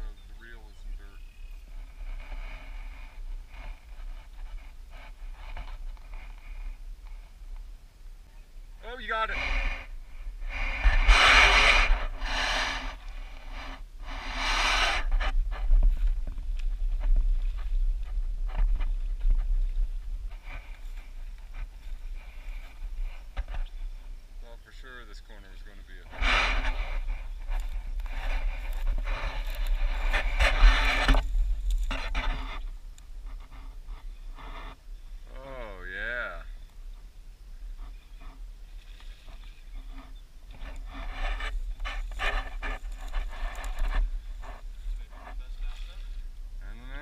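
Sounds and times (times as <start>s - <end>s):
gusty wind on microphone: 0.0s - 24.5s, 25.8s - 35.2s
heavy breathing: 9.3s - 15.4s.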